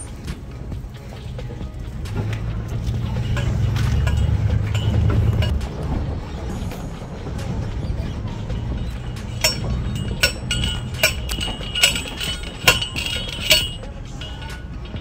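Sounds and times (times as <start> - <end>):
low steady rumble: 0.0 - 15.0
post driver clanking on metal post: 3.0 - 5.6, 9.1 - 15.0.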